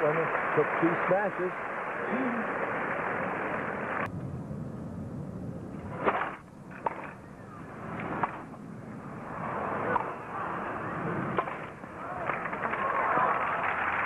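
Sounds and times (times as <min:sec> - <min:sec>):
crowd noise burst: 0:07.6 - 0:14.0
low crowd murmur: 0:09.2 - 0:14.0.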